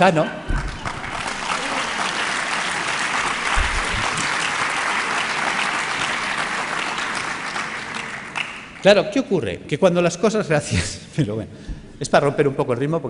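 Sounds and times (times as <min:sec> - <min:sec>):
audience applauding: 0:00.5 - 0:08.9.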